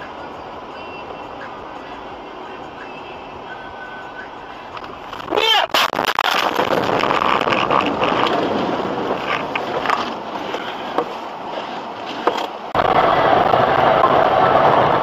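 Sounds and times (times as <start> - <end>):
loud steady rushing noise: 0.0 - 15.0
car scraping and rattling: 4.2 - 15.0.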